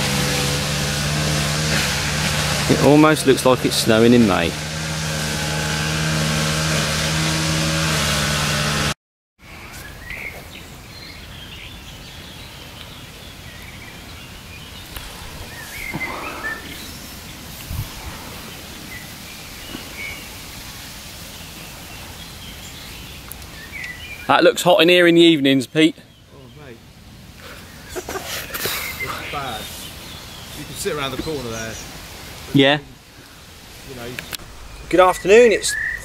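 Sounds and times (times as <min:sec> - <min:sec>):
vehicle engine hum: 0:00.0 - 0:09.0
short bird chirps: 0:34.4 - 0:36.0.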